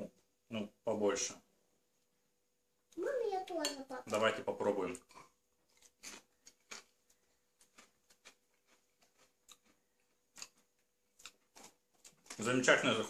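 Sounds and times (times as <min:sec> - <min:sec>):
person chewing potato chip: 0:05.2 - 0:12.6.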